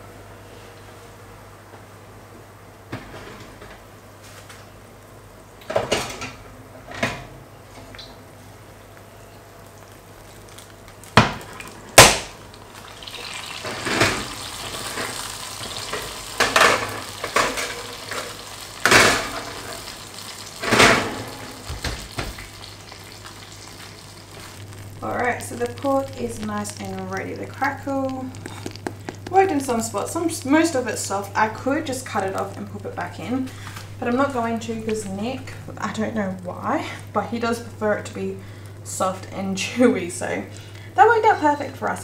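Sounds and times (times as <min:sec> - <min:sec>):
fat sizzling in a dish: 0:08.4 - 0:41.5.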